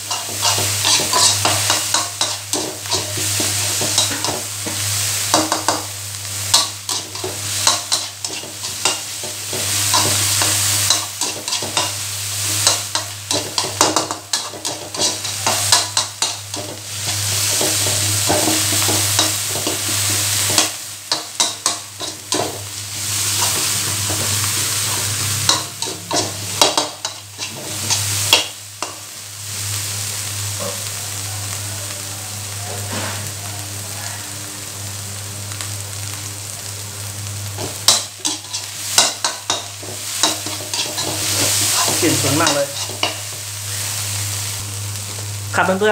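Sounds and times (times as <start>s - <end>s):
metal spatula scraping a wok: 0.0s - 5.8s, 6.5s - 29.0s, 37.6s - 43.4s
paste sizzling in oil: 0.0s - 31.6s, 34.9s - 45.9s.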